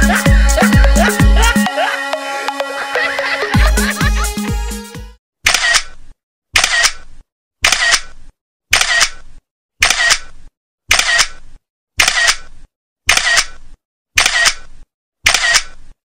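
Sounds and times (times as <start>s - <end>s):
camera shutter sound effect: 5.4s - 6.0s, 6.6s - 16.0s.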